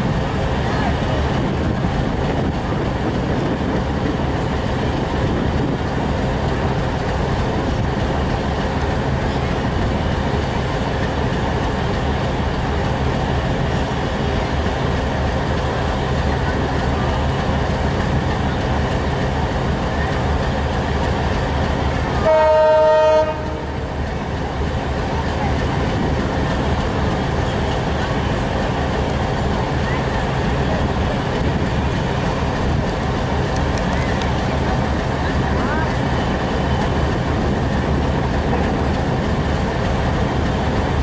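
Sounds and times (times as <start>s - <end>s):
diesel locomotive rumble: 0.0s - 41.0s
locomotive horn blast: 22.1s - 23.8s.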